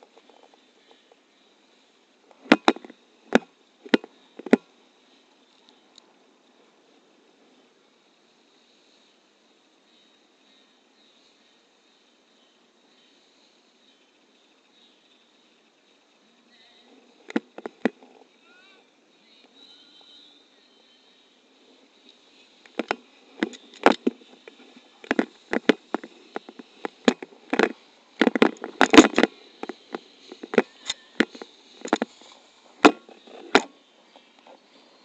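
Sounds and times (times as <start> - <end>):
faint high hiss: 0.0 - 35.0
knocks thumps and rustles: 22.7 - 32.2.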